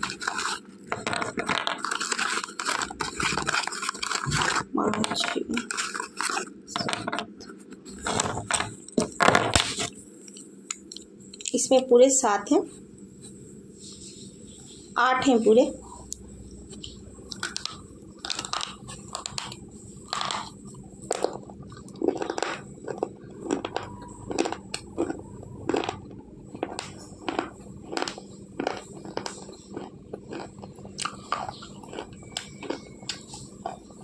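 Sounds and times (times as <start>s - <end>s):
gritty chewing crunches: 0.0s - 4.7s, 16.0s - 34.0s.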